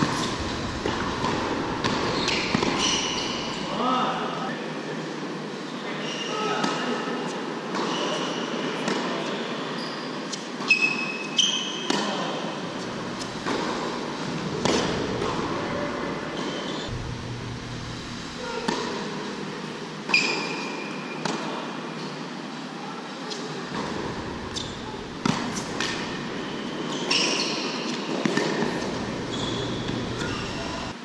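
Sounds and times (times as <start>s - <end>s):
shoes squeaking on court: 0.0s - 3.7s, 9.3s - 16.9s, 23.3s - 31.0s
racket striking ball: 0.1s - 3.3s, 14.6s - 15.6s, 23.7s - 26.3s
ball bouncing: 0.1s - 3.4s, 23.7s - 26.3s.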